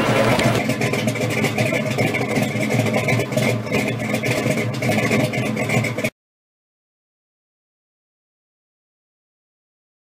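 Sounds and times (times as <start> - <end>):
car engine idling: 0.0 - 6.1.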